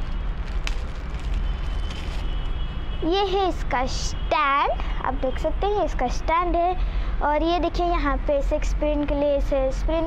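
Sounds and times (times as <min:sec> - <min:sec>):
plastic wrapping rustling: 0:00.0 - 0:02.7.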